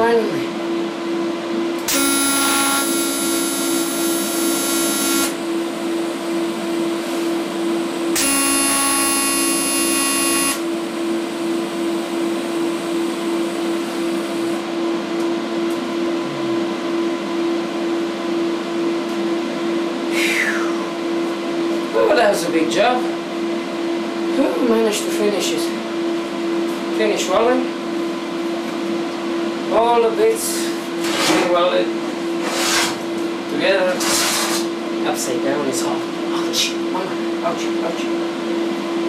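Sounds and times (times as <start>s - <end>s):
steady pulsing hum: 1.6s - 15.0s
welding arc buzzing: 1.8s - 5.6s, 8.1s - 10.9s.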